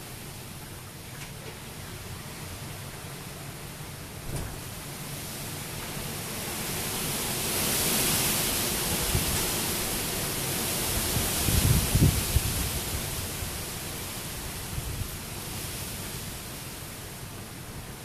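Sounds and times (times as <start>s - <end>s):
rain falling on street: 0.0s - 18.0s
wind buffeting microphone: 8.8s - 16.0s.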